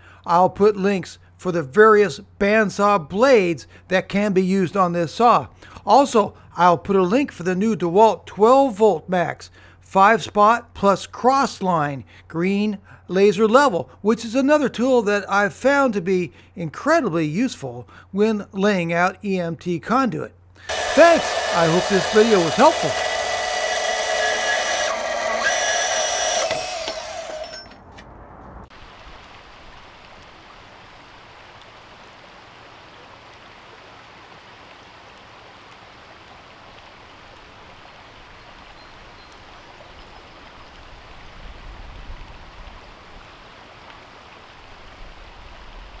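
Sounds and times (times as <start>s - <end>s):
stream water hissing: 20.6s - 27.4s
band saw cutting metal: 20.7s - 27.8s.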